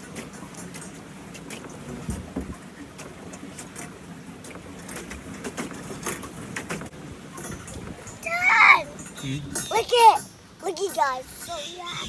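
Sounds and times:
light clicks and knocks: 0.0s - 8.3s
pedal boat churning water: 0.0s - 12.0s.

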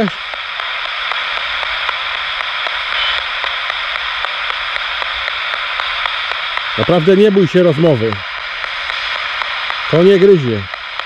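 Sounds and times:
faint clicks of radio scanner: 0.0s - 11.0s
radio static hiss: 0.0s - 11.0s.

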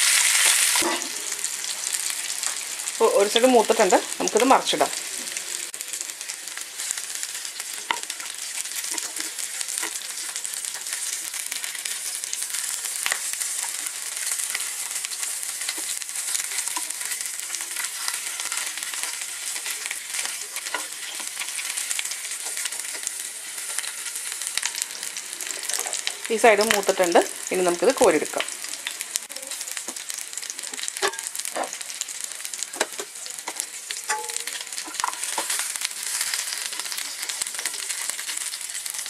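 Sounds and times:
chicken sizzling in hot oil: 0.0s - 39.0s.

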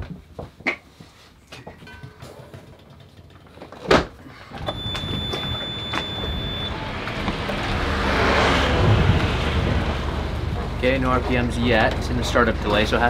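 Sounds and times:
steady high beep: 4.6s - 7.0s
boat engine idling: 4.6s - 13.0s.

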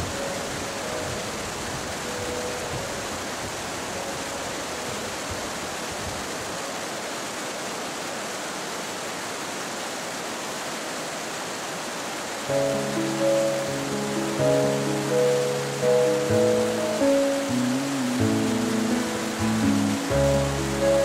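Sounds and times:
water rushing over boulders: 0.0s - 21.0s.

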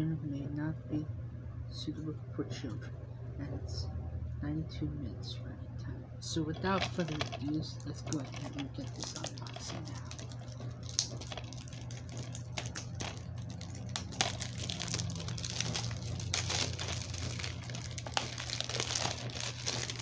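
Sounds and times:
plastic shrink wrap crinkling: 6.5s - 20.0s.

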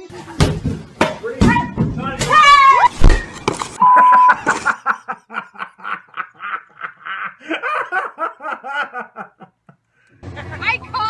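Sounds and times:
man laughing: 3.9s - 9.8s.

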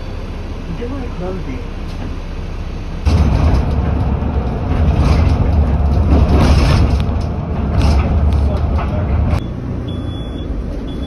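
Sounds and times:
bus rumbling from inside: 0.0s - 11.0s
road noise: 0.0s - 11.0s
knocks and rattles: 3.1s - 9.4s.

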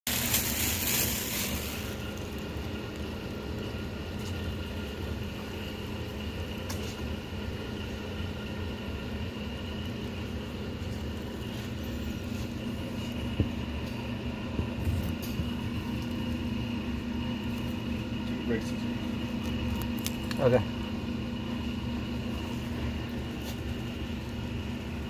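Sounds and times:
rushing hiss: 0.1s - 2.1s
low machinery hum: 0.1s - 25.0s.

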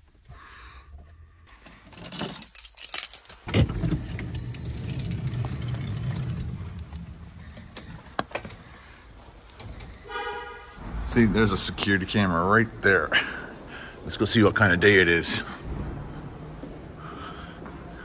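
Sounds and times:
sliding door rolling rumble: 3.5s - 8.0s.

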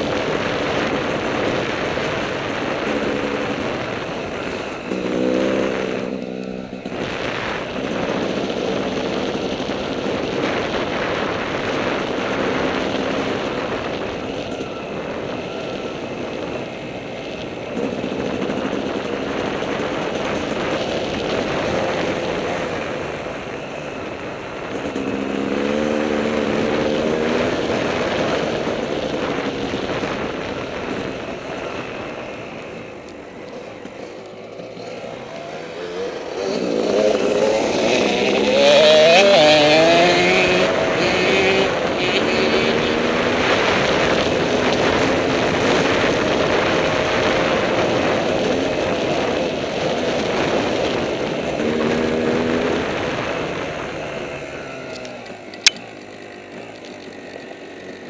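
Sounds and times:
dirt bike engine revving: 0.0s - 14.0s, 24.6s - 32.2s, 33.4s - 55.0s
heavy wind noise: 0.0s - 58.0s.

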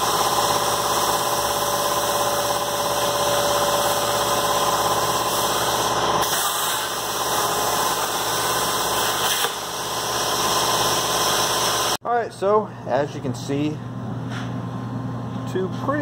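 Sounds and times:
plasma torch cutting steel hissing: 2.7s - 12.0s.

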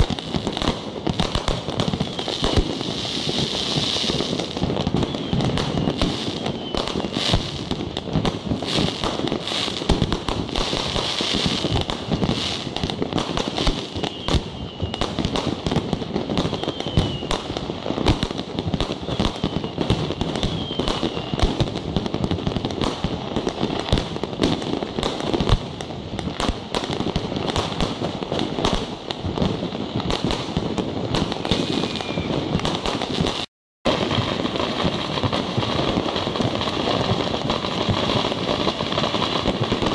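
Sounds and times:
fireworks bangs and crackling: 0.0s - 39.9s
whistles falling in pitch: 31.8s - 32.4s.

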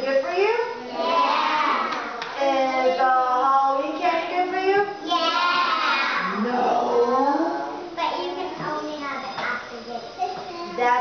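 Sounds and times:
children singing together: 5.0s - 6.4s.

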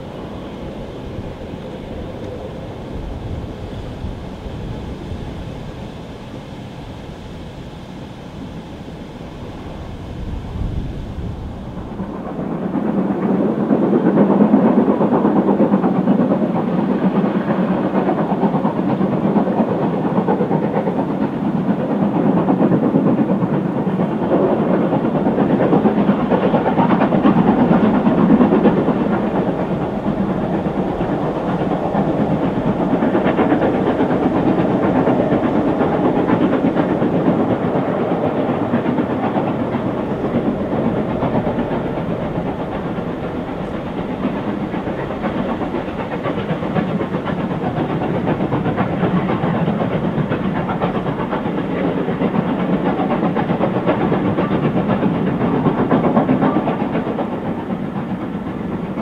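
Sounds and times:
steam locomotive exhaust: 0.0s - 59.0s
wheel-on-rail noise: 15.6s - 59.0s.

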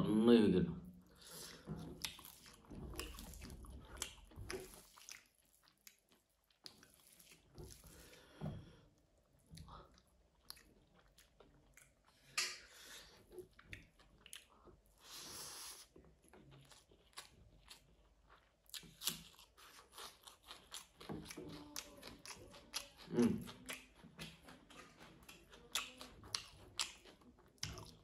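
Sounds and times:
chewing and mouth sounds: 1.2s - 8.4s, 9.3s - 28.0s.

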